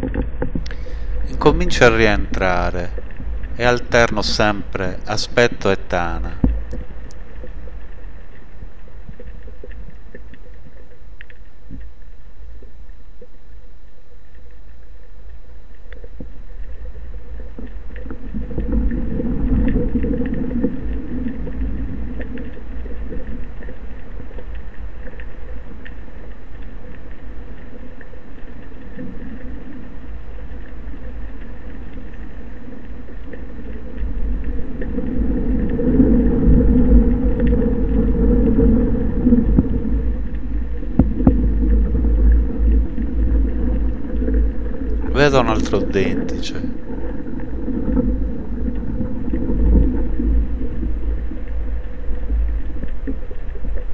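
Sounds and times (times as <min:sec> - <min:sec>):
underwater water rumble: 0:00.0 - 0:53.9
faint clicks: 0:06.2 - 0:45.1.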